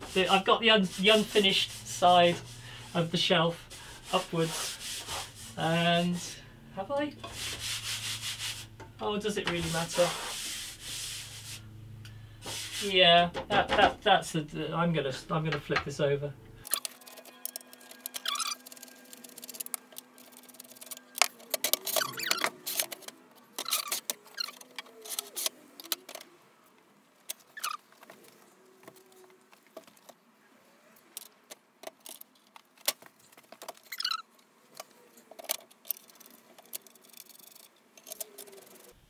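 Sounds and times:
short squeaks: 16.7s - 19.8s, 20.8s - 26.0s, 27.4s - 27.9s, 33.8s - 34.3s.

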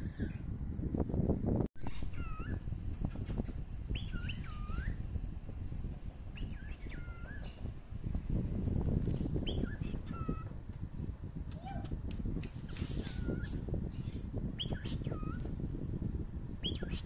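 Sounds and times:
steady low rumble: 0.0s - 17.0s
small animal whistled calls: 4.0s - 5.0s, 9.5s - 10.5s, 12.7s - 13.6s.

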